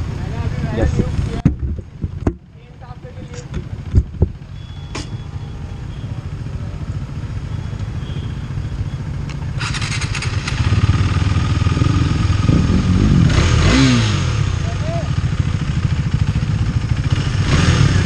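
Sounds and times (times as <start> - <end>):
motorcycle engine idling: 0.2 - 13.2, 14.4 - 18.0
engine revving: 9.5 - 18.0.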